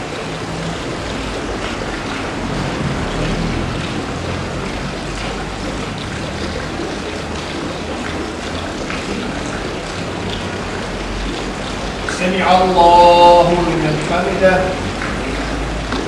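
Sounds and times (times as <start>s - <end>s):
outdoor background hum: 0.0s - 16.0s
man chanting a prayer call: 12.1s - 14.9s.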